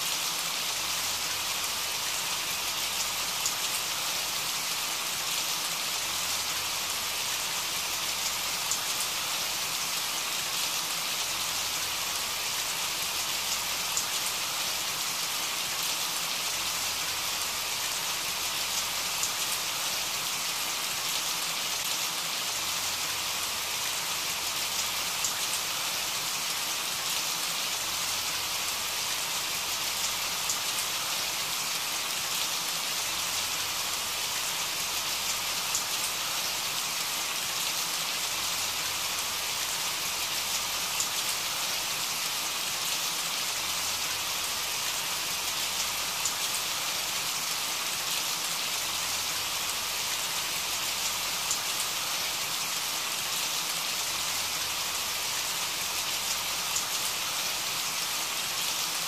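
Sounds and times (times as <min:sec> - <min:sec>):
steady rain hiss: 0:00.0 - 0:59.0
faint raindrop ticks: 0:40.5 - 0:41.3.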